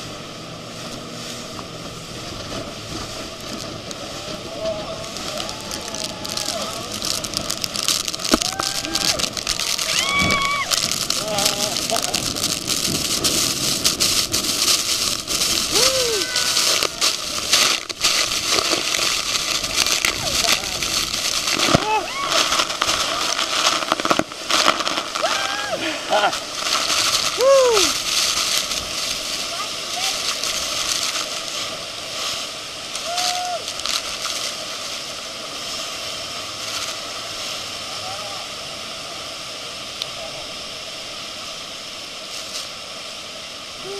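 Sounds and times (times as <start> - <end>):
wind gusts on microphone: 0.0 - 32.4
waterfall crashing roar: 0.0 - 43.9
person shouting: 4.6 - 7.0, 8.4 - 11.8, 15.7 - 17.0, 21.8 - 22.4, 25.2 - 26.4, 27.4 - 28.0, 33.0 - 33.6.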